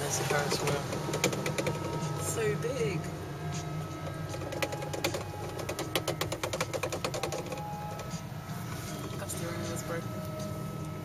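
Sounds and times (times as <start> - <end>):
electric car hum: 0.0 - 11.0
light clicks and rattles: 4.0 - 8.2.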